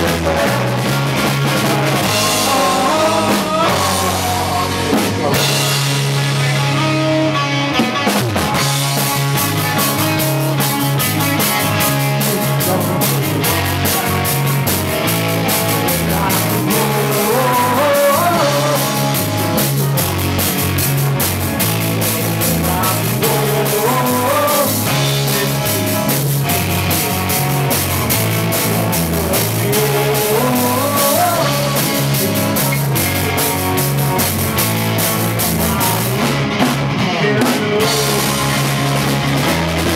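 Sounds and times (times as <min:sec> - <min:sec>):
rising melodic line: 0:00.0 - 0:07.4
live rock band playing: 0:00.0 - 0:39.9.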